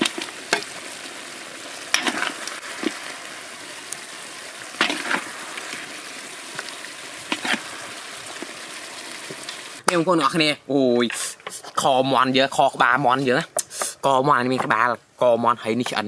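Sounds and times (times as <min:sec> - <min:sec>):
food sizzling in a wok: 0:00.0 - 0:09.9
metal spatula scraping a pan: 0:01.9 - 0:02.5, 0:07.3 - 0:07.7.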